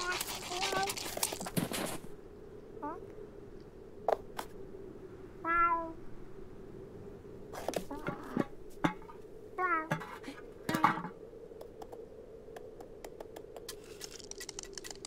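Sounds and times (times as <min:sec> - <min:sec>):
cartoon cat chirps and meows: 0:05.4 - 0:06.0.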